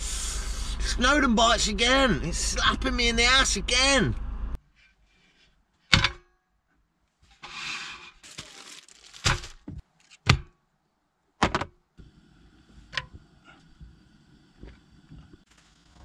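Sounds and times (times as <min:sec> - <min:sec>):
rustling: 0:07.1 - 0:10.2
sharp knocks and thuds: 0:09.2 - 0:10.6.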